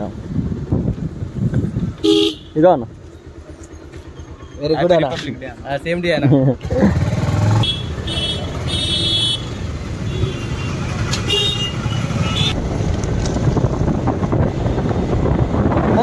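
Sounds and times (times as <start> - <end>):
motorcycle engine and road rumble: 0.0 - 16.0
vehicle horns honking: 2.0 - 2.6, 7.5 - 12.6.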